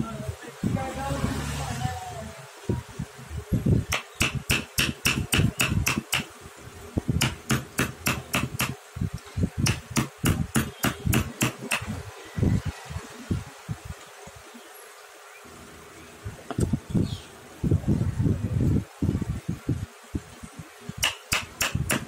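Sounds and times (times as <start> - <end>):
mallet striking chisel into wood: 3.9 - 6.3, 7.2 - 8.8, 9.6 - 12.0, 21.0 - 22.0.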